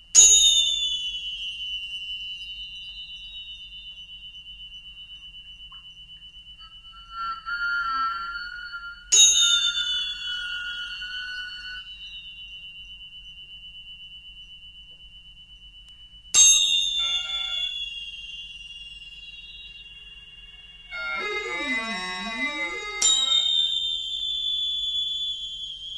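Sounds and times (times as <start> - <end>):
steady high ringing tone: 0.0 - 25.9
metal percussion strikes ringing: 6.6 - 11.8.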